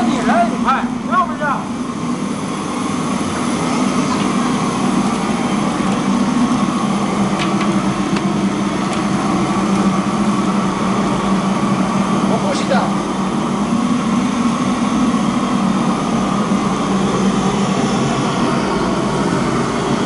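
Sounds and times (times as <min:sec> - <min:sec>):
gas burner roaring: 0:00.0 - 0:20.0.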